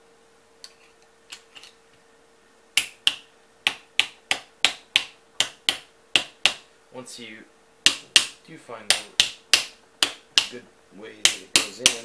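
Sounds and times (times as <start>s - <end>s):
sharp taps on metal: 2.8s - 6.6s, 7.8s - 10.6s, 11.2s - 12.0s.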